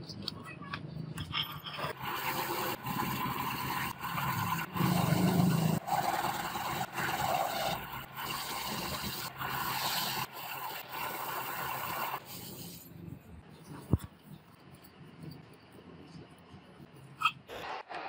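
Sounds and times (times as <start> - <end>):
electric motor running: 2.0 - 12.2.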